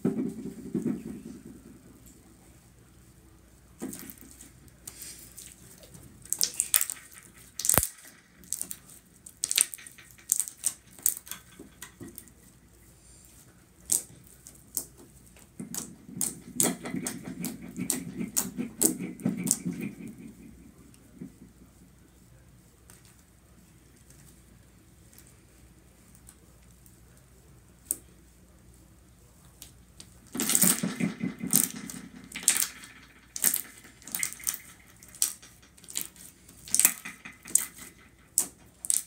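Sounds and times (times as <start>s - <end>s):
slime clicking and popping: 6.3s - 11.4s, 30.4s - 39.0s.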